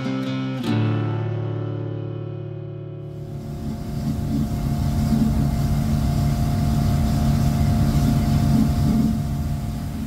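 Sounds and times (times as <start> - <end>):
motorboat engine running: 3.1 - 10.0
wind and water rushing: 3.2 - 10.0.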